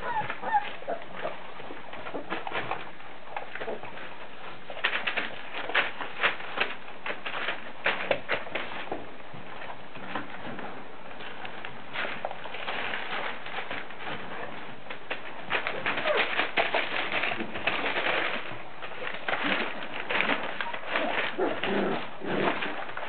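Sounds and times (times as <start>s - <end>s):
puppies whimpering: 0.0s - 1.4s
claws scratching on tile floor: 11.2s - 23.0s.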